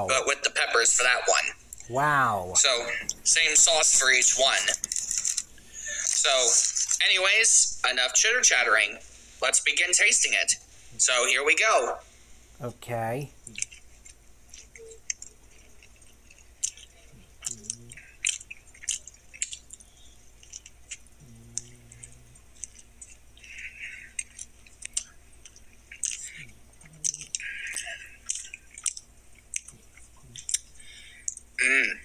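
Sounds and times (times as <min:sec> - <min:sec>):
person chewing: 0:13.5 - 0:31.5.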